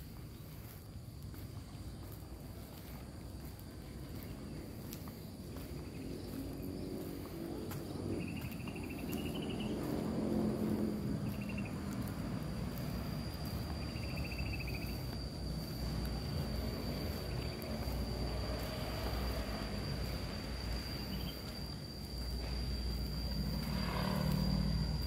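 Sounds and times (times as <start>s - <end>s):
insects high-pitched drone: 0.0s - 25.0s
low hum: 0.0s - 25.0s
short buzzy insect trills: 5.8s - 25.0s.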